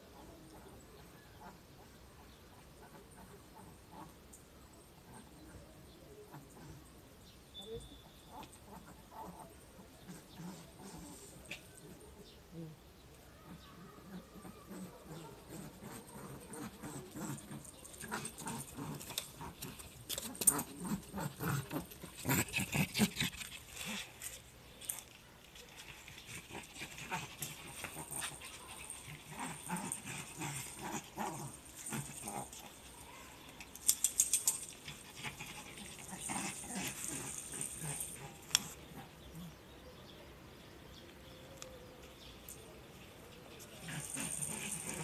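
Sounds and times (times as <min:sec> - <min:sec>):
dog on leash scuffing and clicking: 0:15.6 - 0:38.8.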